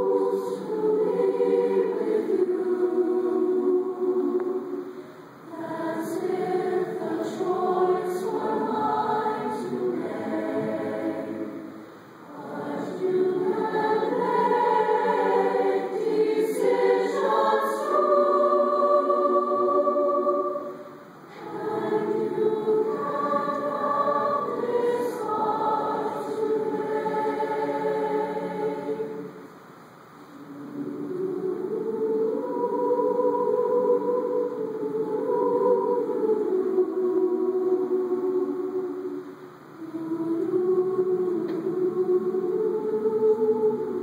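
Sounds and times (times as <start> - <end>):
mixed choir singing: 0.0 - 29.6, 30.3 - 44.0.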